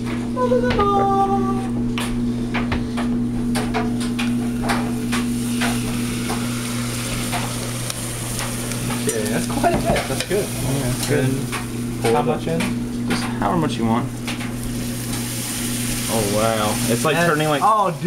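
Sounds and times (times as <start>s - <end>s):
steady low hum: 0.0s - 18.0s
liquid nitrogen boiling with hiss: 3.6s - 18.0s.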